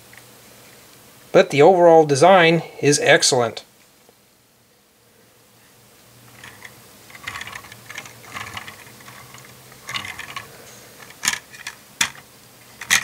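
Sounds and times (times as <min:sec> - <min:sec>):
plastic toy wheels rolling: 0:06.3 - 0:12.2, 0:12.8 - 0:13.0.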